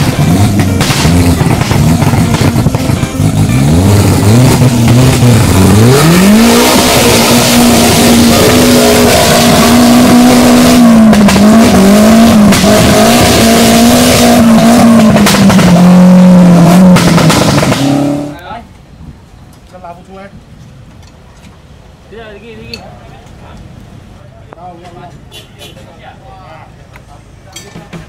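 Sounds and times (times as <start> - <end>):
buggy engine revving hard: 0.0 - 18.4.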